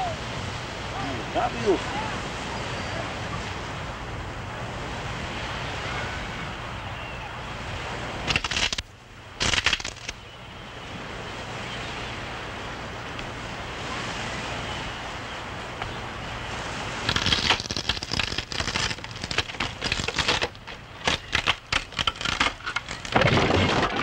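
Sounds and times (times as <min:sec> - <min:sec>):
surf: 0:00.0 - 0:24.0
wind: 0:00.0 - 0:24.0
crackling clicks: 0:08.3 - 0:10.2, 0:17.0 - 0:24.0.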